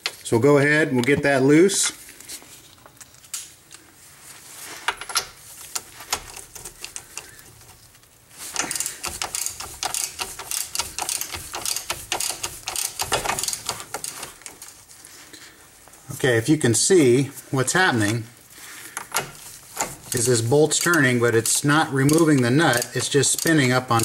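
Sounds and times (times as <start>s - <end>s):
socket ratchet clicking: 8.6s - 14.4s, 20.7s - 24.0s.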